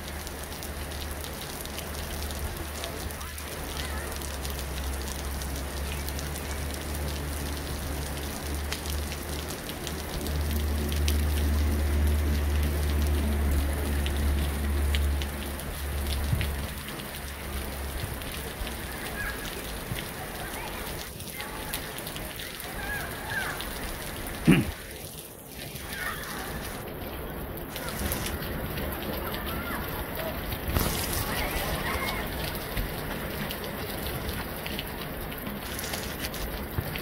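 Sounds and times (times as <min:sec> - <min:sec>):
raindrops ticking: 0:00.0 - 0:37.0
steady rain: 0:00.0 - 0:37.0.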